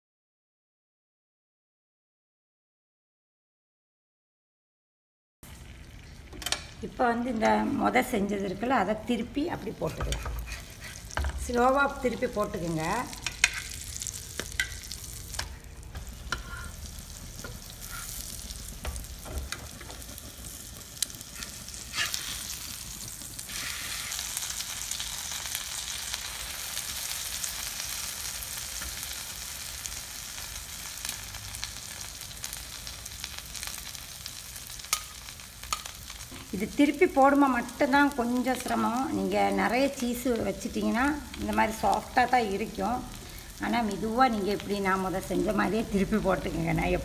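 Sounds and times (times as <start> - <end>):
metal spatula scraping pan: 9.8 - 11.5, 13.2 - 18.4, 21.2 - 22.6
bread sizzling in butter: 10.0 - 39.9.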